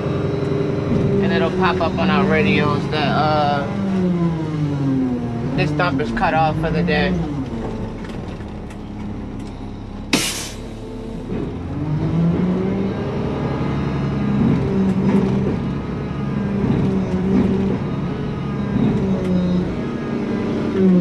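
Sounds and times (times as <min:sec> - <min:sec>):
garbage truck diesel engine: 0:00.0 - 0:21.0
brief air hiss: 0:10.1 - 0:10.8.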